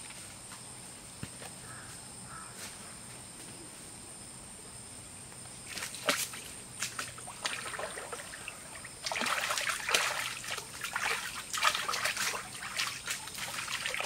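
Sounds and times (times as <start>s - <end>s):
hands splashing water: 5.7s - 14.0s.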